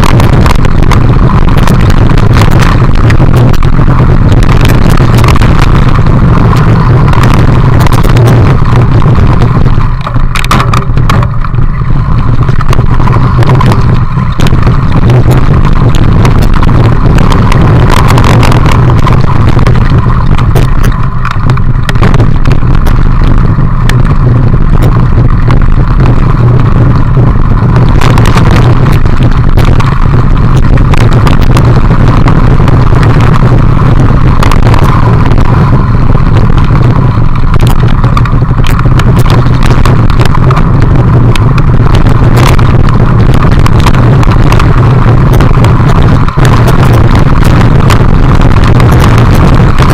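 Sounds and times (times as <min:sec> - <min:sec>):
bike rattling over stones: 0:00.0 - 0:49.9
wind and tyre rumble: 0:00.0 - 0:49.9.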